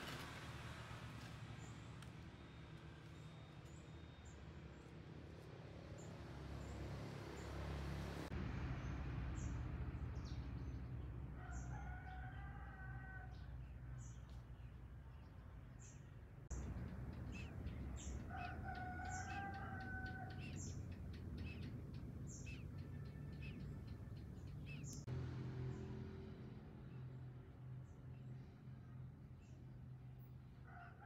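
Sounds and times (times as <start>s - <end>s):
rooster crowing: 11.4s - 13.5s, 17.3s - 20.8s, 22.6s - 24.3s.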